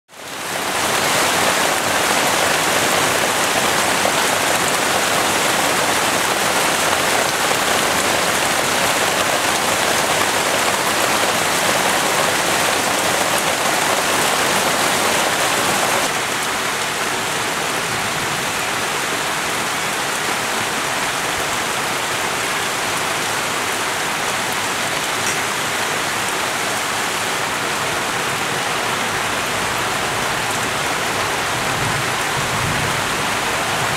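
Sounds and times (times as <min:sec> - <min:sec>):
heavy rain hissing: 0:00.1 - 0:33.9.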